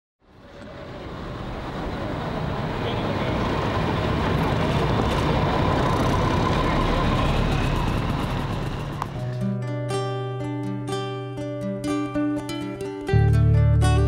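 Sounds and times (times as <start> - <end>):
street traffic noise: 0.2 - 9.6
guitar picking notes: 8.9 - 14.0.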